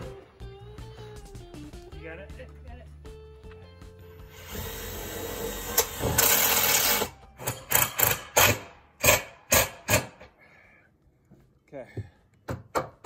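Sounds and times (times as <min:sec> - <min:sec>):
cordless drill driving screws: 0:04.3 - 0:10.2.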